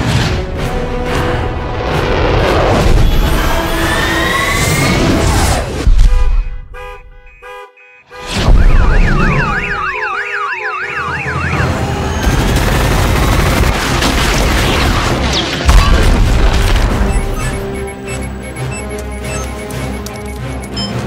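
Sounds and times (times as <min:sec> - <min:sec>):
car alarm chirps: 0:06.2 - 0:11.8, 0:17.0 - 0:21.0
alarm tones wailing: 0:08.4 - 0:12.4, 0:17.0 - 0:21.0
action film blasts and crashes: 0:12.2 - 0:17.7.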